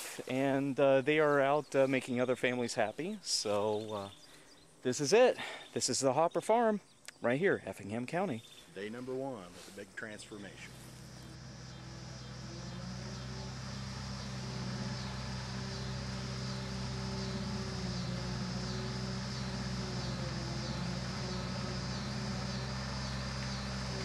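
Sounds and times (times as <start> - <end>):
insects chirping: 3.5 - 8.8, 9.4 - 24.0
tractor diesel engine running: 10.3 - 24.0.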